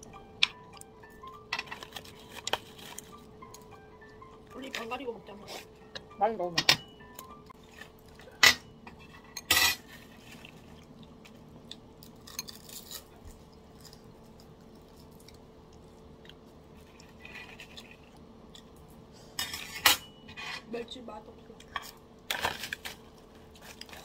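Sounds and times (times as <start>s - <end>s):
faint steady hum: 0.0s - 24.0s
cutlery clatter: 7.8s - 10.0s, 19.4s - 20.7s.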